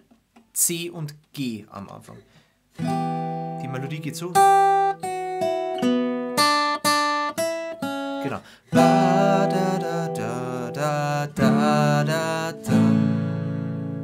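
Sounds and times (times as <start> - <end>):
acoustic guitar picking and strumming: 2.7 - 14.0
man singing wordlessly: 8.2 - 14.0.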